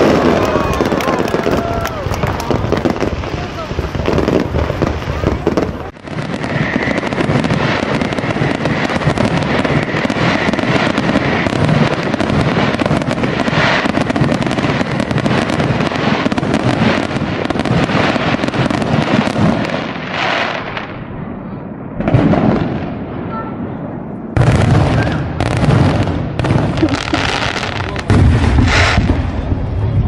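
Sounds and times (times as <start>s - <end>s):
fireworks crackling and popping: 0.0s - 30.0s.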